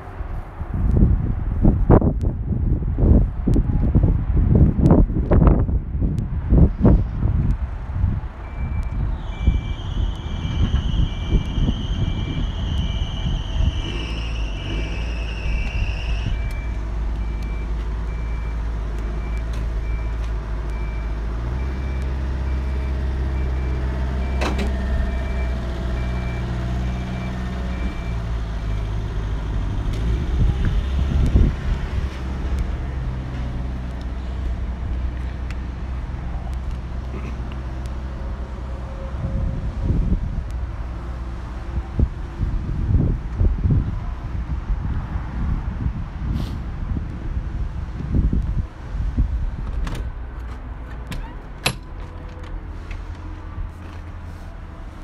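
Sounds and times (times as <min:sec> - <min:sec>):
regular beeping: 0:08.4 - 0:10.6, 0:13.5 - 0:29.0
high whine: 0:08.7 - 0:17.8.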